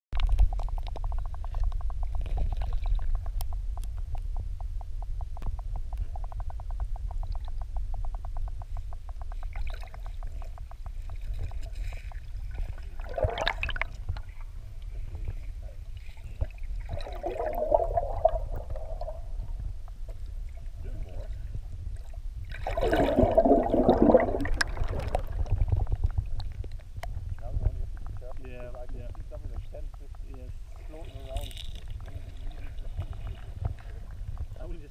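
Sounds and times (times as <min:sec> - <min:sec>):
low underwater rumble: 0:00.2 - 0:34.9
bubbly water gushes: 0:11.4 - 0:14.6, 0:16.2 - 0:19.7, 0:22.4 - 0:26.5.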